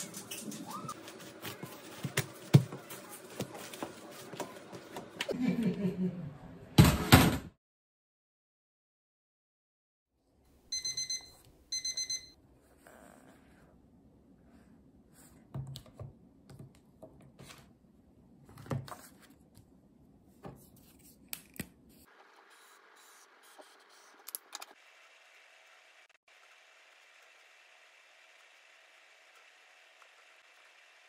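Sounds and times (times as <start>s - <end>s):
electronic alarm beeping: 10.7s - 12.4s.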